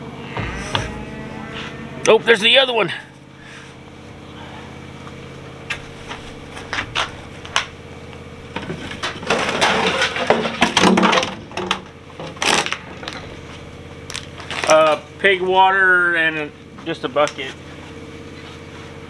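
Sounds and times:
plastic buckets knocking and clattering: 8.6 - 12.4.

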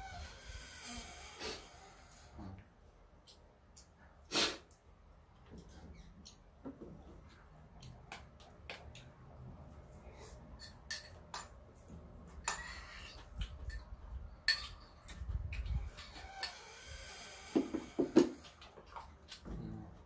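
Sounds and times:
utensils clinking against bowls: 10.6 - 11.6, 12.4 - 15.2, 15.9 - 16.7.

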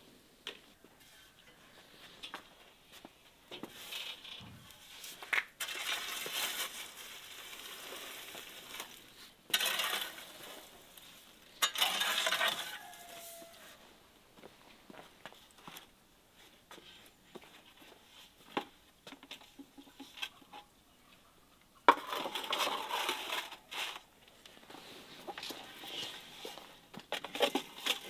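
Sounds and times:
metal tool scraping embers: 9.5 - 13.6.

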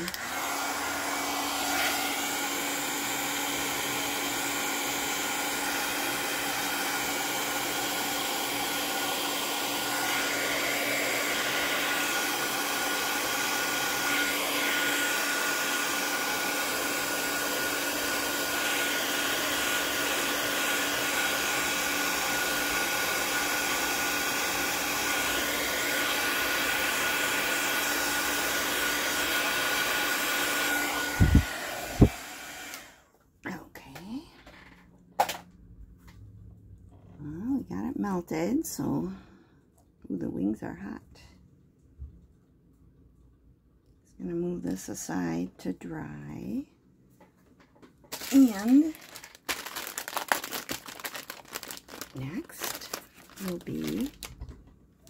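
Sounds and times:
heat gun blowing with whine: 0.0 - 33.0.

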